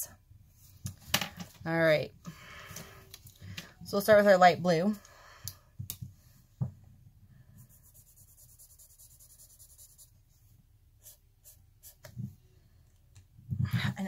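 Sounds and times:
marker scratching on paper: 7.6s - 10.1s.

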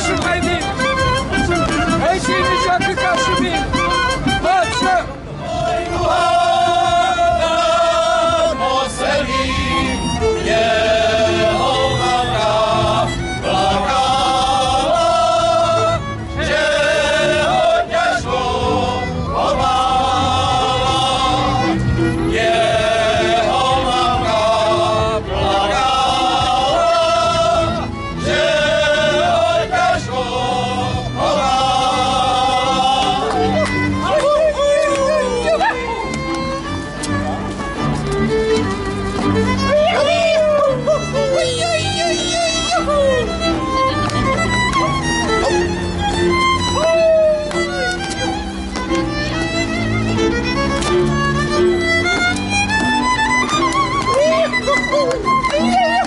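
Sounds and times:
group of men singing: 5.4s - 34.4s.

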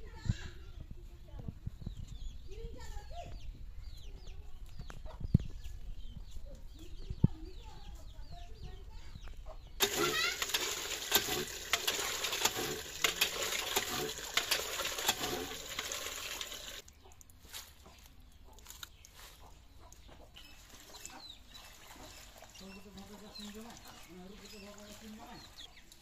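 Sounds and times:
water gushing from hand pump: 9.8s - 16.8s, 20.8s - 26.0s
leaves washed in water: 9.8s - 17.8s, 20.6s - 26.0s.

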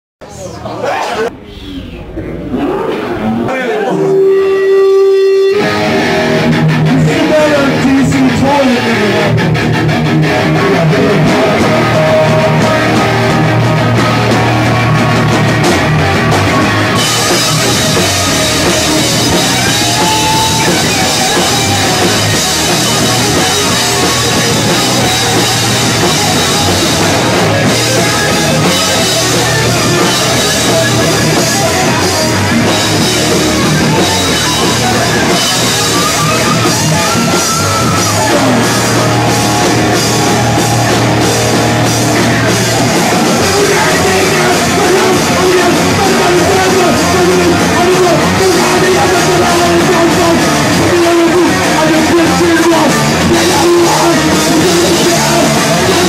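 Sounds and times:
punk band playing: 0.3s - 56.0s.

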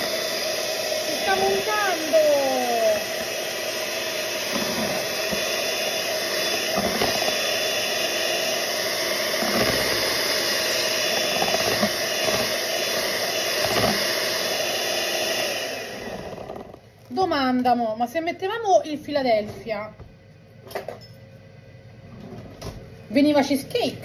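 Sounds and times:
electric mixer running: 0.0s - 17.1s.

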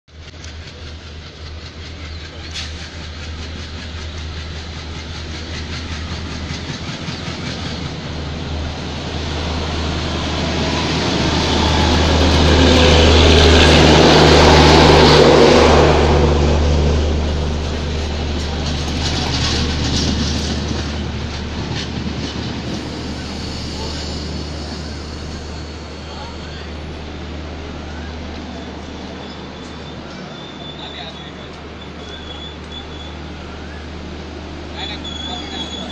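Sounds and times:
train wheel clatter: 0.1s - 15.8s, 17.6s - 26.7s
diesel locomotive engine drone: 0.1s - 35.9s
train coaches rumbling: 0.1s - 35.9s.

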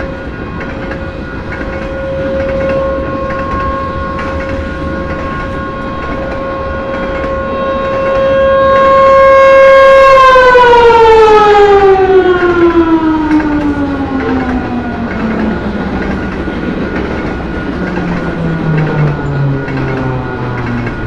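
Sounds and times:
warning siren wailing: 0.0s - 21.0s.

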